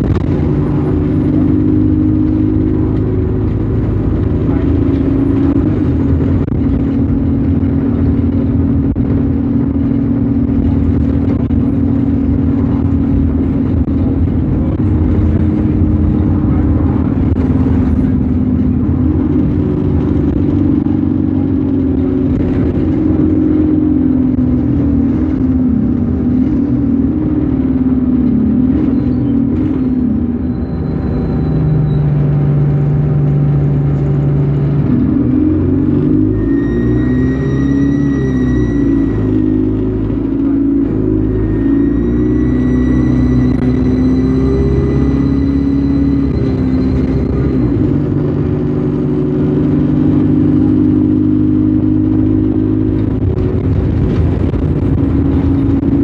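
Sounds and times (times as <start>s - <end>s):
bus diesel engine running: 0.0s - 56.0s.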